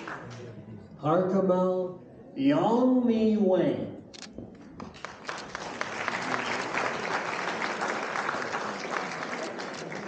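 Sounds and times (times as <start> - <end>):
audience applauding: 0.0 - 0.5, 4.8 - 10.0.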